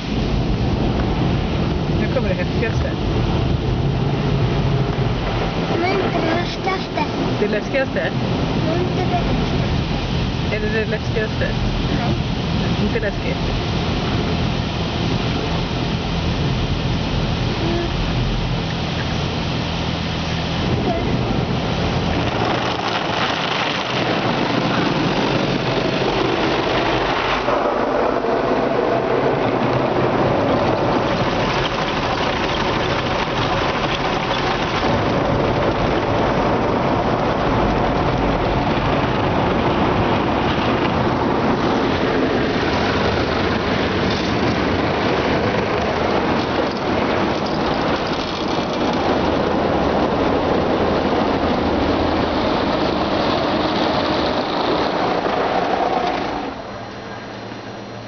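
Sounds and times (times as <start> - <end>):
car wash brushes scrubbing: 20.2 - 49.8
water running on glass: 29.4 - 43.0.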